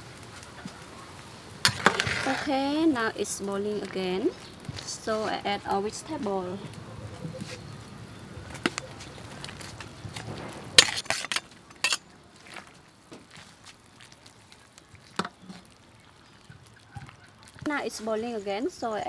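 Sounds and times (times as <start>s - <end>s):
boiling pot hissing: 0.0s - 19.0s.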